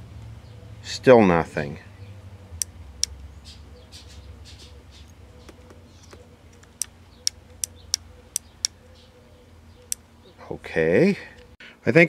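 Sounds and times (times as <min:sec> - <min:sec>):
sharp high clicks: 0:06.5 - 0:08.8.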